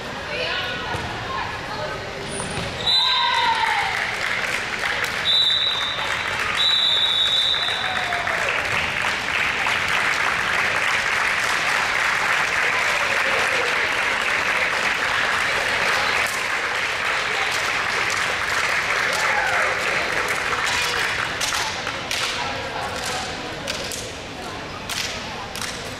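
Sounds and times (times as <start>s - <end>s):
crowd applauding: 3.5s - 21.6s.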